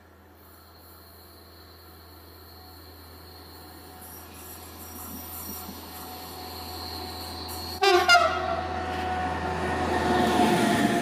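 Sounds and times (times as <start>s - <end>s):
diesel locomotive engine running: 0.0s - 11.0s
locomotive horn blast: 7.8s - 8.7s.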